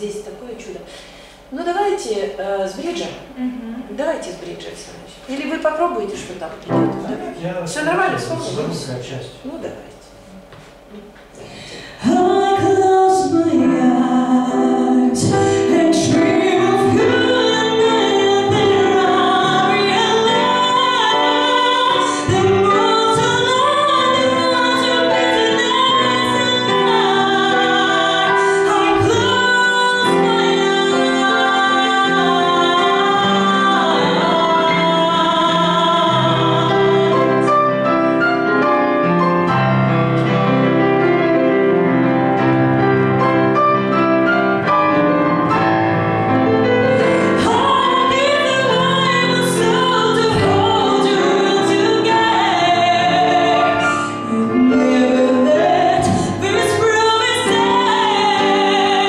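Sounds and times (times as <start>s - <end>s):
digital piano accompaniment: 1.4s - 59.0s
woman singing into a microphone: 11.8s - 37.5s, 47.2s - 59.0s.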